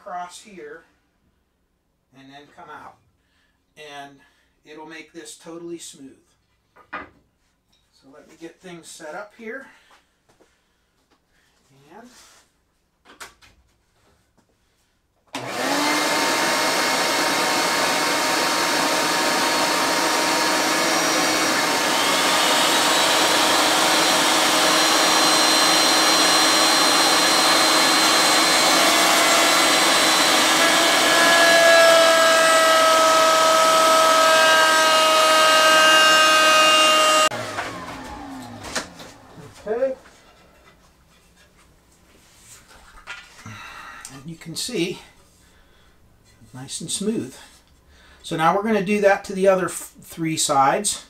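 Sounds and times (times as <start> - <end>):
router motor cutting wood: 15.4 - 40.0.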